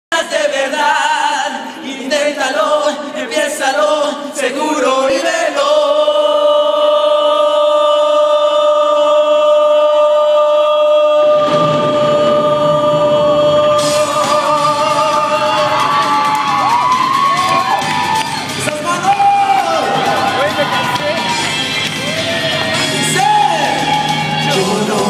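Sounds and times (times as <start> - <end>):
man singing into a microphone: 0.1 - 16.5, 23.0 - 25.0.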